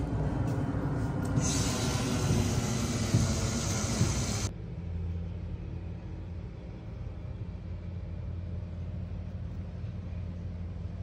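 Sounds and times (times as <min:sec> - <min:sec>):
rough low rumble: 0:00.0 - 0:11.0
steady low hum: 0:00.0 - 0:11.0
hiss: 0:01.4 - 0:04.5.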